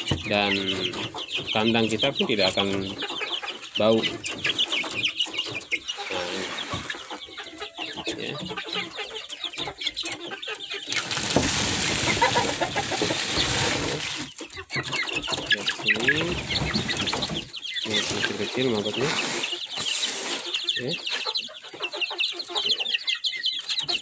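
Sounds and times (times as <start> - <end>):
chickens clucking: 0.0 - 24.0.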